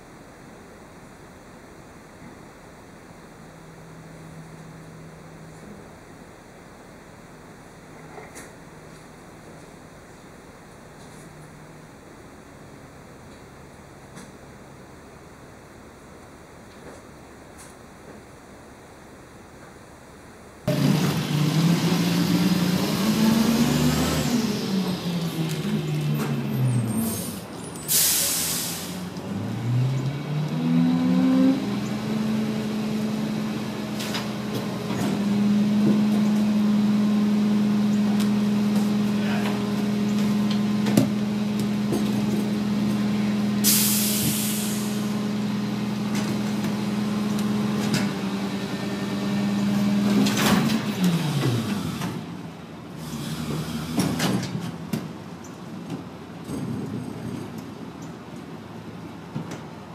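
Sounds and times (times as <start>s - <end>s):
garbage truck diesel engine revving: 20.7s - 54.6s
packer hydraulics running: 20.7s - 55.1s
air hisses: 27.1s - 29.1s, 43.6s - 45.0s.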